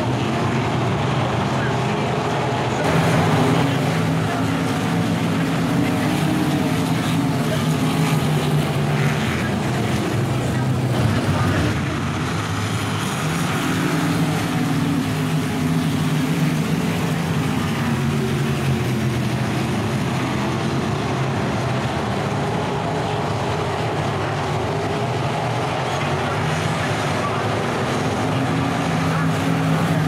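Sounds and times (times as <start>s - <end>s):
race car engines droning: 0.0s - 30.0s.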